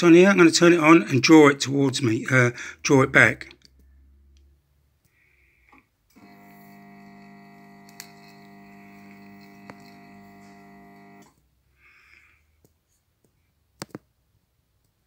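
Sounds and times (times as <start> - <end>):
soldering unit buzzing: 6.1 - 11.3.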